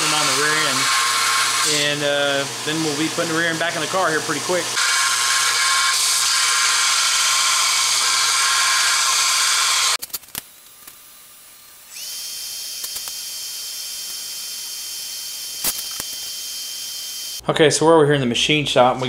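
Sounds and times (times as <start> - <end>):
belt sander grinding steel: 0.0 - 17.4
welding hiss with high whine: 0.0 - 17.4
clicks: 12.1 - 13.3.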